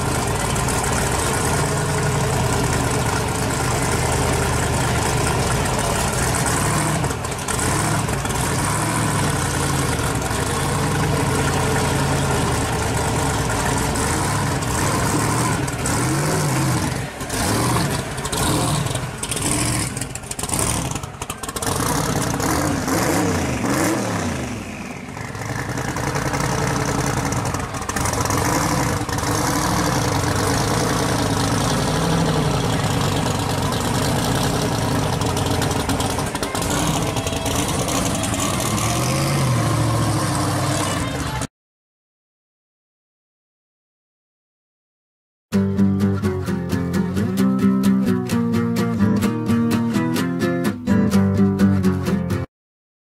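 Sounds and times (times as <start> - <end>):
car engine idling and revving: 0.0 - 41.5.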